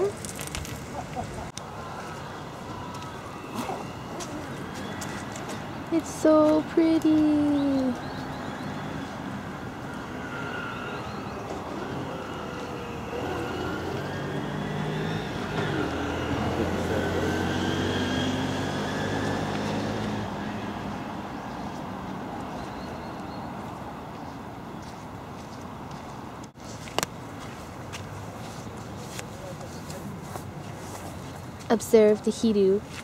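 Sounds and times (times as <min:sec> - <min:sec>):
traffic hum: 0:00.0 - 0:33.0
vehicle engine passing: 0:07.4 - 0:22.6.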